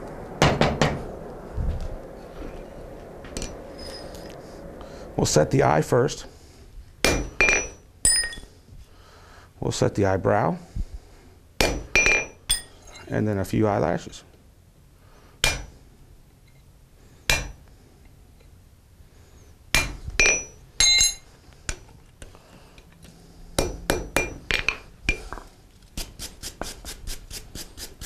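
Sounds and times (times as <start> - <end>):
hammer striking metal on anvil: 7.0 - 8.5, 11.6 - 12.7, 15.4 - 15.7, 17.3 - 17.6, 19.8 - 21.2, 23.6 - 24.8.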